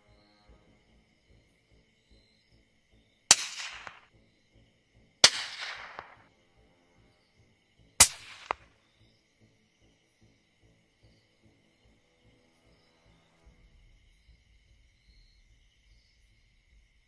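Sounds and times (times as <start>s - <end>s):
rifle shots: 3.3s - 4.1s, 5.2s - 6.2s, 8.0s - 8.7s
short echoing crack: 3.3s - 4.1s, 5.2s - 6.2s, 8.0s - 8.7s.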